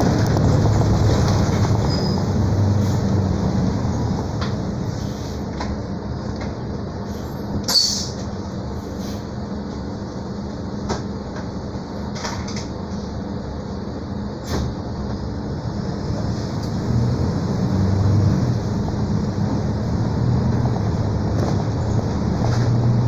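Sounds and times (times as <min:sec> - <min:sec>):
bus engine low hum: 0:00.0 - 0:23.0.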